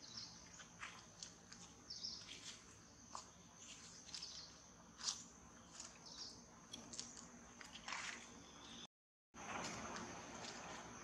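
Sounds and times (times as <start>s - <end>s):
bird chirps: 0.0s - 0.7s, 8.2s - 8.9s.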